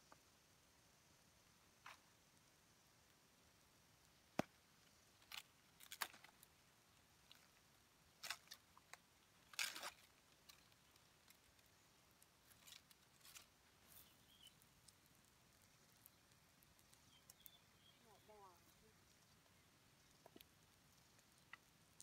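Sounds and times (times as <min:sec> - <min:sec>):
bamboo scraping: 0:08.2 - 0:11.8, 0:12.4 - 0:15.0.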